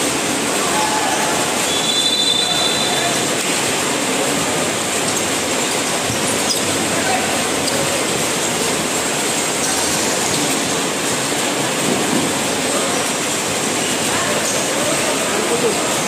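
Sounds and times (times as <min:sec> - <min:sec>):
dense crowd noise: 0:00.0 - 0:16.0.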